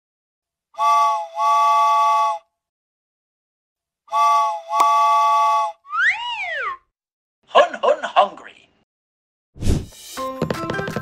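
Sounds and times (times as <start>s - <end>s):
steam locomotive whistle: 0.8s - 2.5s, 4.1s - 5.8s.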